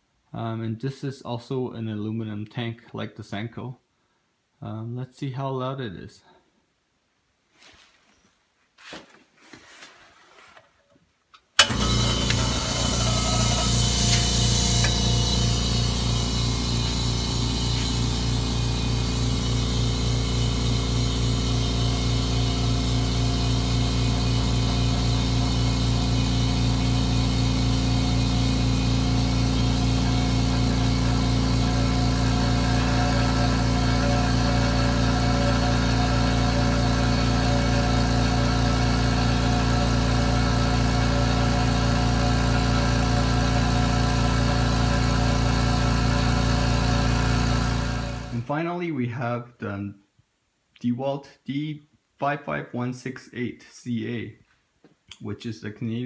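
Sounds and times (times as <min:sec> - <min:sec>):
air compressor running: 0:11.6 - 0:48.4.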